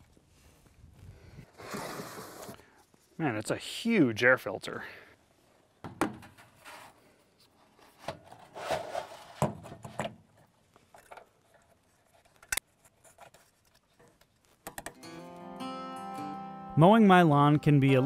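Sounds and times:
rubbing and scraping of filter: 0:07.6 - 0:09.5.

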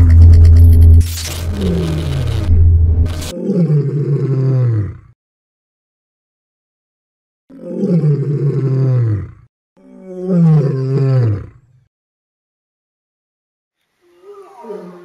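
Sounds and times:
big cat roaring: 0:01.4 - 0:05.2, 0:07.5 - 0:11.6, 0:14.2 - 0:15.0.

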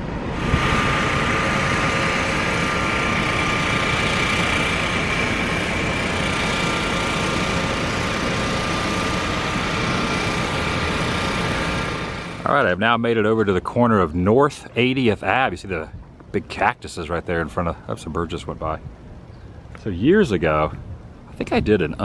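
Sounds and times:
air conditioning blowing: 0:00.0 - 0:22.0
faint constant whine: 0:00.0 - 0:22.0
car engine running: 0:00.4 - 0:12.7.

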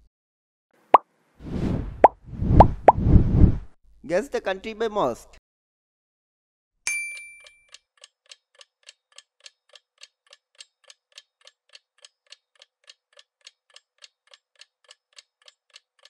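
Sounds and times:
clock-like ticking: 0:08.0 - 0:16.0.

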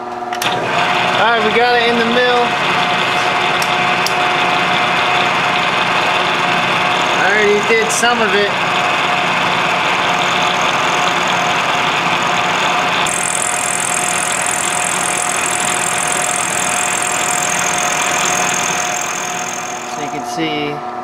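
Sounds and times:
milling machine motor hum: 0:00.4 - 0:20.3.

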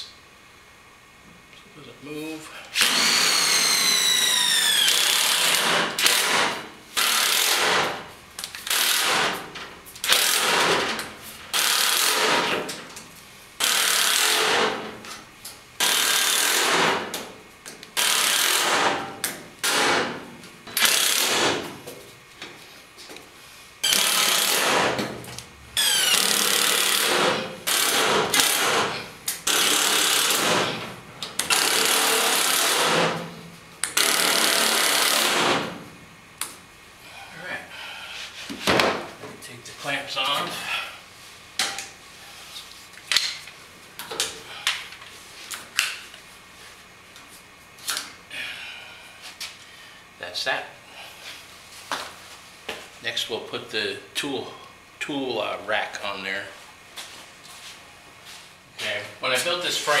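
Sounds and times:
motor winding down whine: 0:02.8 - 0:06.3, 0:23.8 - 0:24.7, 0:25.8 - 0:28.8
impact driver hammering: 0:04.7 - 0:08.0, 0:08.6 - 0:12.7, 0:13.6 - 0:14.9, 0:15.8 - 0:17.2, 0:18.0 - 0:21.7, 0:23.8 - 0:25.2, 0:25.8 - 0:30.8, 0:31.4 - 0:35.8.

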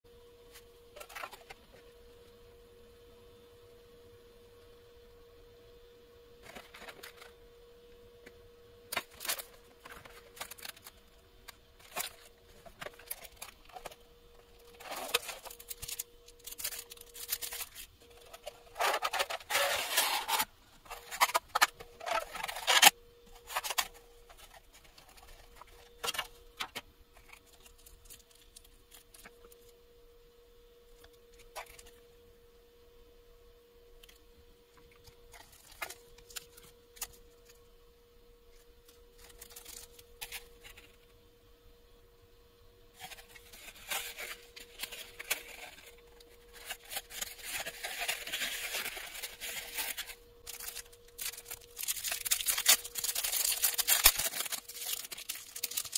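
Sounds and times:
faint steady hum: 0:00.1 - 0:55.9
plastic packaging crinkling: 0:08.9 - 0:29.7, 0:34.8 - 0:37.6, 0:38.5 - 0:41.0, 0:43.0 - 0:55.9.

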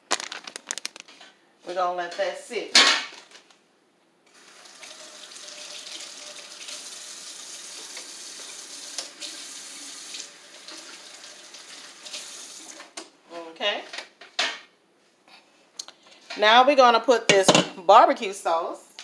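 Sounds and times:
faucet running into sink: 0:04.3 - 0:12.8.

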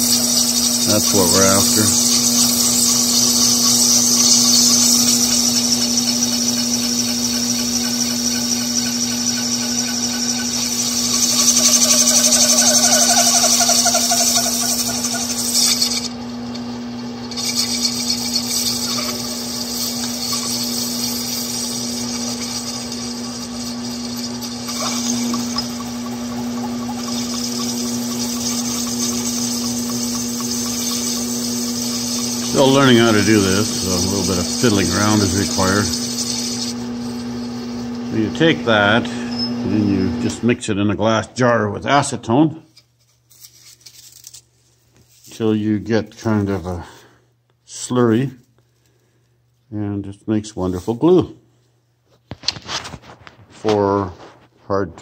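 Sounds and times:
tool hissing cutting plastic pipe: 0:00.0 - 0:16.2, 0:17.3 - 0:39.3
lathe motor hum: 0:00.0 - 0:40.5.

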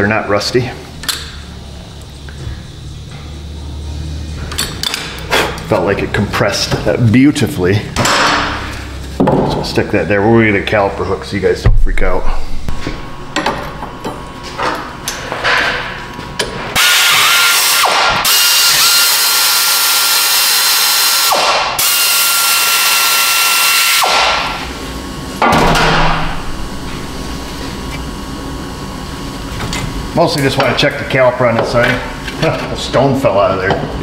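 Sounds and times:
air tool rushing and whining: 0:16.7 - 0:25.0.

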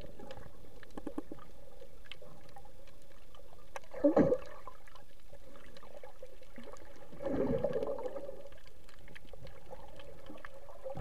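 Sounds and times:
faint clicks: 0:00.0 - 0:03.9
water gurgling surge: 0:03.9 - 0:05.0, 0:05.9 - 0:08.6.

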